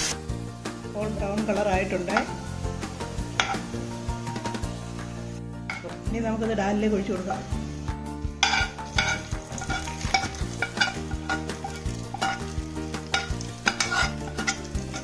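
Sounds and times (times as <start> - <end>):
oil and spices sizzling: 0.0 - 15.0
soft background music: 0.0 - 15.0
metal spoon scraping a pan: 3.3 - 3.8, 8.4 - 15.0.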